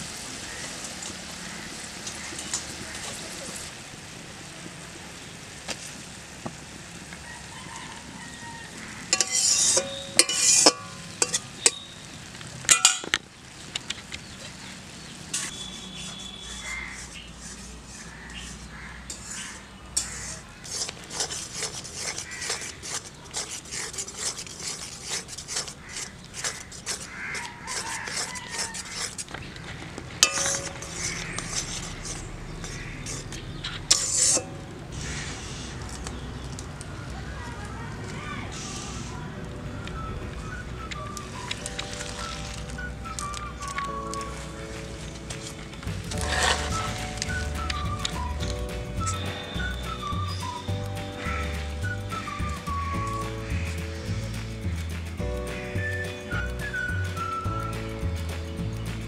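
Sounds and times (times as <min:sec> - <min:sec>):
wok bubbling hiss: 0:00.0 - 0:58.8
metal pots clattering: 0:09.1 - 0:11.9, 0:12.6 - 0:13.2, 0:30.2 - 0:34.7, 0:45.3 - 0:48.4.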